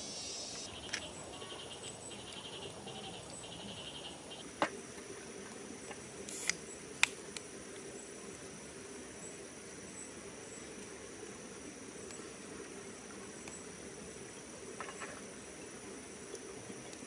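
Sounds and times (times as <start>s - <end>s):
insect chirring: 0.0s - 4.7s.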